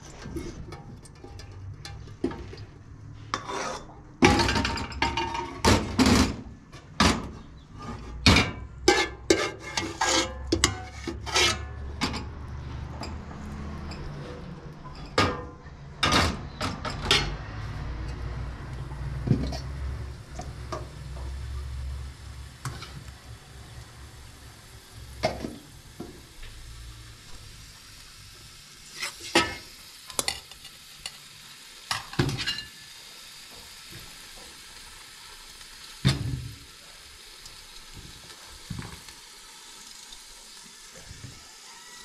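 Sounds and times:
cookware and utensils clattering: 0.0s - 2.7s, 3.3s - 18.4s, 19.2s - 21.3s, 28.9s - 31.2s, 31.9s - 32.9s.

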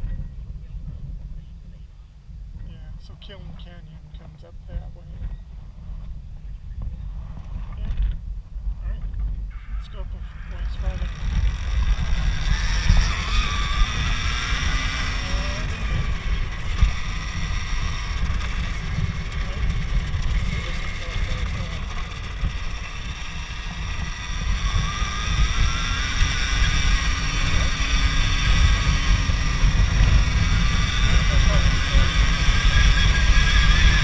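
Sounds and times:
wind buffeting on microphone: 0.0s - 34.0s
electric motor whining: 10.2s - 34.0s.

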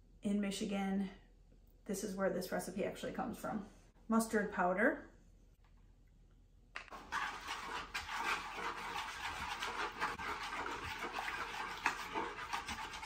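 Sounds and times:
wooden fork scraping wooden bowl: 6.9s - 13.0s.

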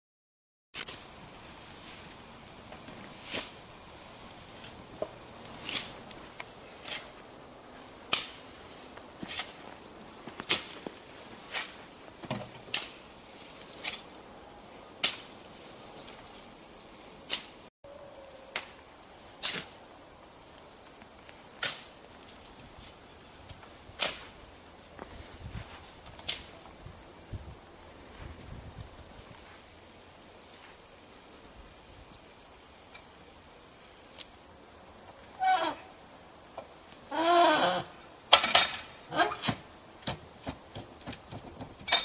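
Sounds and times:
shovel scraping sand: 2.9s - 3.6s, 5.4s - 7.2s, 7.8s - 9.6s, 19.4s - 19.8s.

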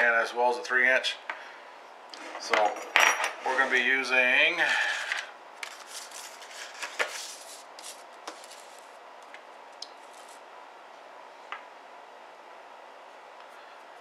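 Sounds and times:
paper plate rustling: 4.7s - 9.0s, 10.0s - 10.4s.

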